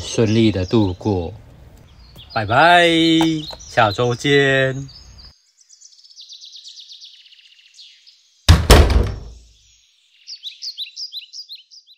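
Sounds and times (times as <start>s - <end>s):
birds chirping: 0.0s - 11.9s
heavy double thud: 8.5s - 9.4s.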